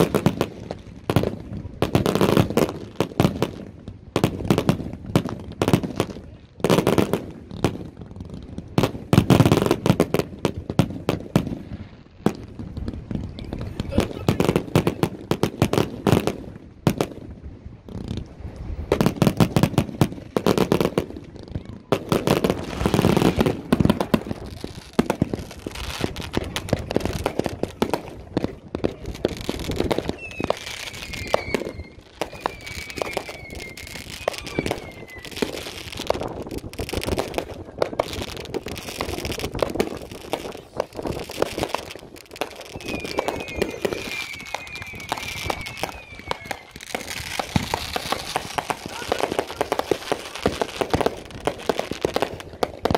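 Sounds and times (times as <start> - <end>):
fireworks bangs and crackling: 0.0 - 52.9
falling whistle: 30.1 - 35.4, 42.7 - 47.2.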